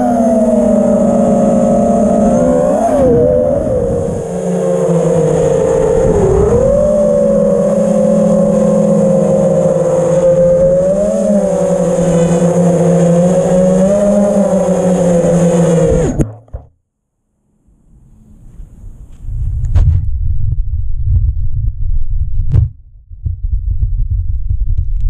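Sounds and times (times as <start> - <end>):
quadcopter motors whining: 0.0 - 16.4.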